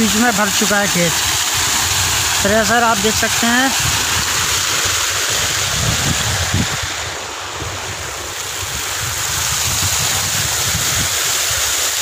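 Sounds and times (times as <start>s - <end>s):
rushing irrigation water: 0.0s - 12.0s
wind buffeting microphone: 3.7s - 11.8s.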